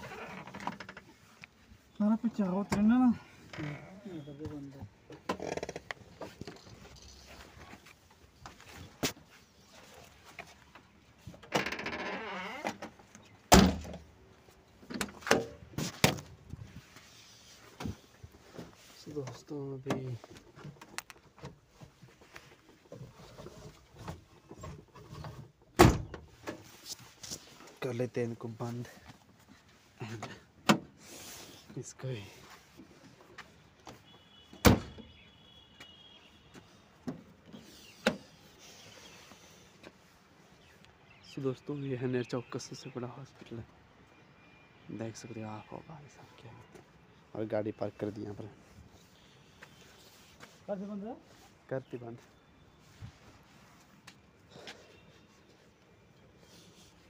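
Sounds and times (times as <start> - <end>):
car door slamming: 34.6 - 35.0.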